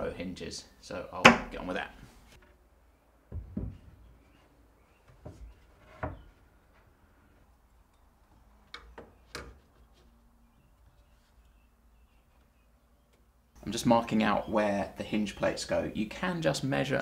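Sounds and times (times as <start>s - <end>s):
wooden cabinet door knocks: 3.3s - 3.9s.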